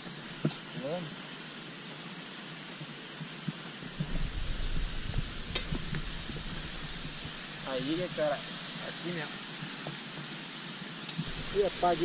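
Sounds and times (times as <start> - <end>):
waterfall rushing: 3.9 - 12.0
low rumbling: 4.0 - 8.2
sharp click: 5.5 - 5.8.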